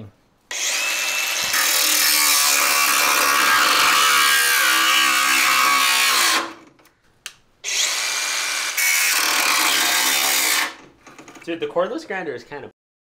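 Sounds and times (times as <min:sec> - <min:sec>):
angle grinder cutting metal: 0:00.5 - 0:06.6, 0:07.7 - 0:10.8.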